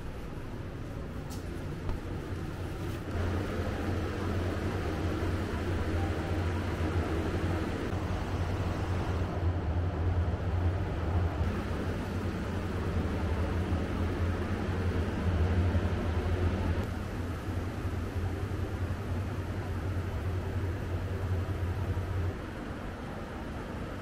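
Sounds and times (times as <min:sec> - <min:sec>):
low hum with hiss: 0:00.0 - 0:24.0.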